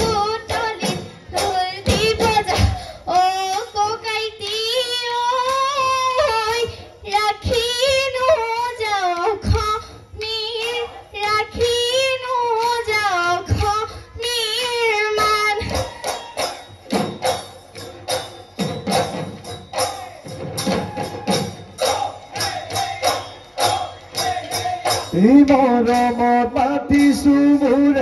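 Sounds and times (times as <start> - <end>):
girl singing: 0.0 - 15.9
drums with jingling percussion: 0.0 - 28.0.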